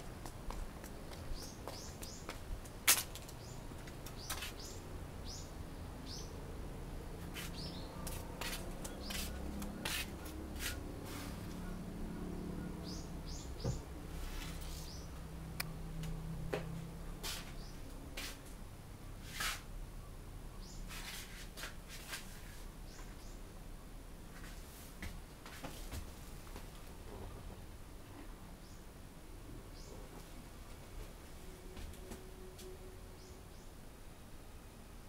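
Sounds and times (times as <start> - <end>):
footsteps and handling clicks: 0.1 - 4.6
small birds chirping: 0.2 - 6.4, 7.2 - 16.0, 17.0 - 18.4, 19.2 - 21.4, 22.0 - 23.5, 28.4 - 29.0, 29.6 - 30.1.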